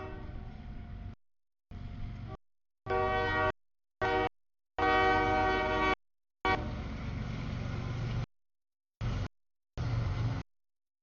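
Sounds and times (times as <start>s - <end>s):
locomotive air horn: 0.0s - 0.6s, 2.3s - 6.9s
rumble of passing train: 0.0s - 4.2s, 5.0s - 8.3s, 9.0s - 10.4s.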